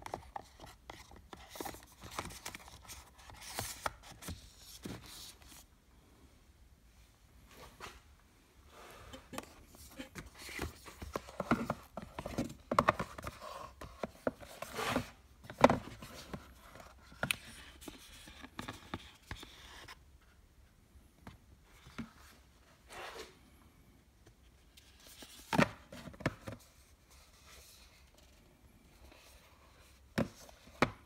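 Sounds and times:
cardboard boxes scraping and rustling: 13.3 - 16.8.

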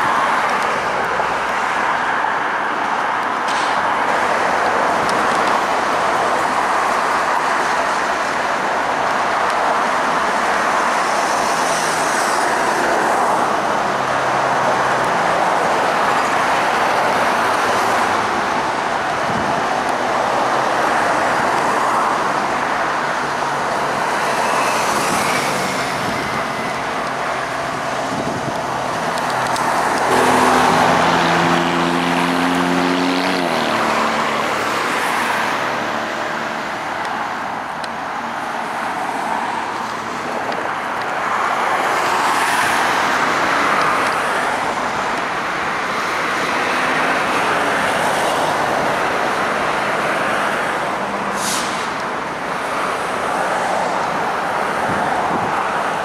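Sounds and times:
locomotive horn: 30.0 - 32.7.

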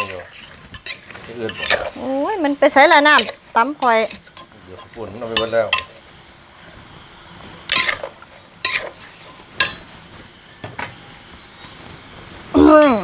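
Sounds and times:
metal spoon scraping clay mortar: 0.0 - 2.1, 3.1 - 5.9, 7.7 - 9.8.

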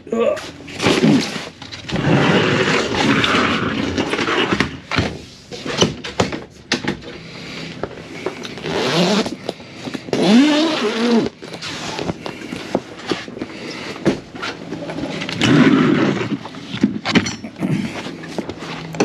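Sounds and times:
objects scraping: 0.4 - 5.8
zipper rasp: 8.6 - 9.4, 10.1 - 12.2, 15.2 - 16.5.

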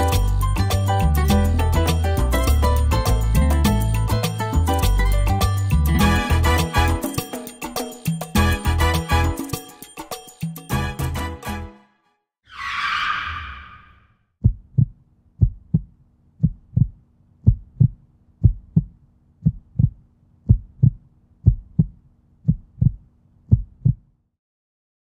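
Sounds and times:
brief whoosh: 12.5 - 14.1
heartbeat double thump: 14.4 - 24.1.

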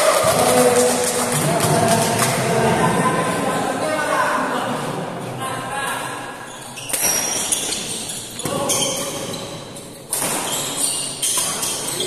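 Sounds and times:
shoes squeaking on court: 6.5 - 12.0
racket hitting shuttlecock: 10.1 - 11.9.

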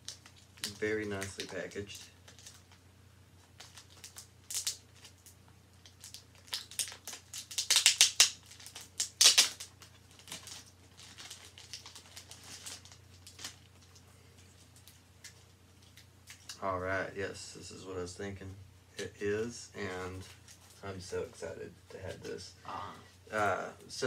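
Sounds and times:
packing material crinkling: 0.0 - 2.8, 3.4 - 16.6.

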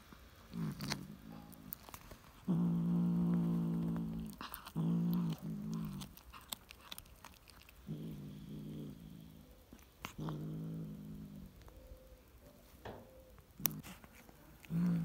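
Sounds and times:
cat growling low: 0.4 - 11.7, 13.6 - 15.0
cat chewing clicks: 4.2 - 7.9.

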